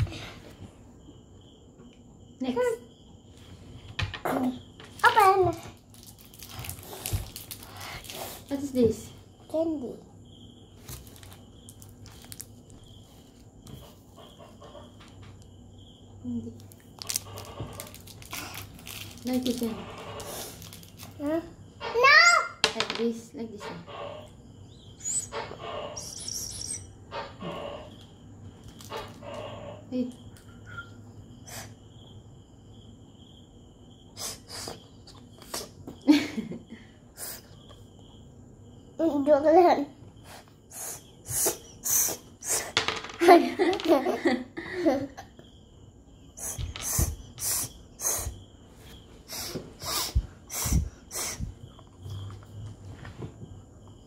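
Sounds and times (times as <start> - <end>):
plastic candy wrapper rustling: 5.8 - 8.5, 10.9 - 12.6, 16.6 - 21.2
child breathy puffs and sniffs: 6.8 - 8.5, 34.1 - 35.8, 37.2 - 37.6, 40.2 - 42.8, 46.4 - 48.4, 49.2 - 51.7.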